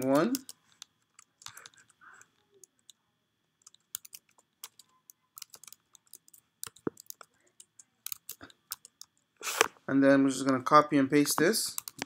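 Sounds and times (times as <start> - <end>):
typing on computer keyboard: 1.2 - 3.0, 3.6 - 9.2, 11.8 - 12.0.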